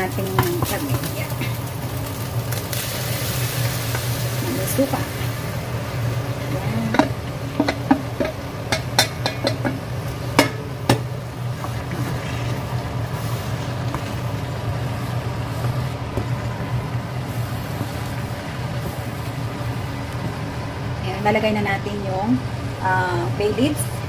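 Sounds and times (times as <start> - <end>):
meat stirred in pan: 0.0 - 20.6
exhaust fan humming: 0.0 - 24.0
utensils knocking frying pan: 0.2 - 1.1, 6.8 - 11.8.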